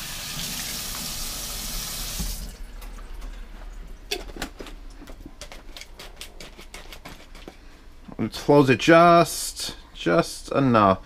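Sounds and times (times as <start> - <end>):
tap running into sink: 2.0 - 2.5.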